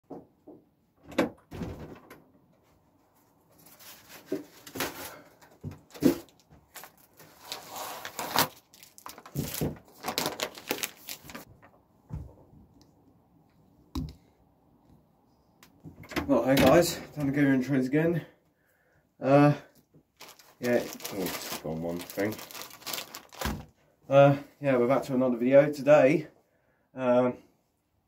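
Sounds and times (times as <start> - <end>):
objects knocking and clunking: 0.0 - 2.6
rustling: 2.6 - 11.8, 20.1 - 23.8.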